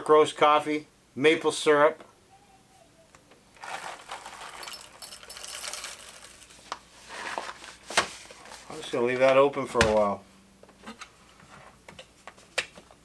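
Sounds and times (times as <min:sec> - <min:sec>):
coffee beans pouring into grinder: 0:03.6 - 0:07.2.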